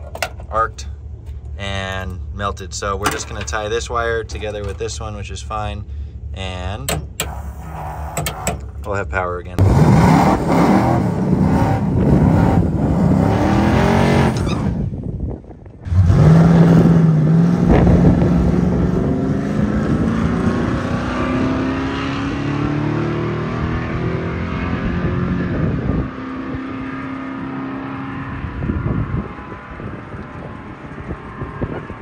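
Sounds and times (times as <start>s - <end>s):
car engine rising in pitch: 9.6s - 15.0s, 15.9s - 32.0s.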